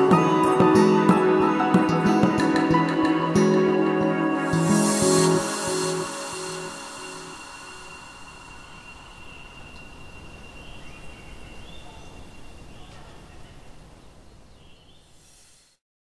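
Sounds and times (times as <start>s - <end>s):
bird chirping: 4.5s - 15.6s.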